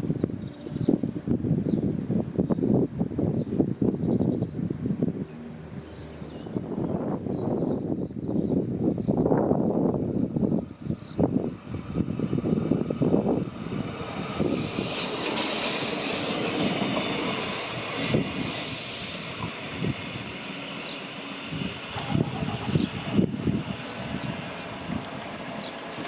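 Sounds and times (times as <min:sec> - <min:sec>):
electric train passing: 0:09.8 - 0:26.0
high hiss from train wheels: 0:13.6 - 0:23.1, 0:25.4 - 0:26.0.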